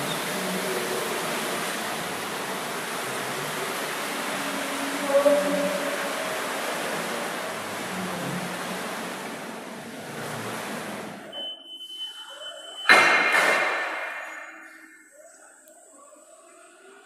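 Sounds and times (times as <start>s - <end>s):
thin high tone: 11.3s - 13.2s
loud ringing bang: 12.8s - 14.8s.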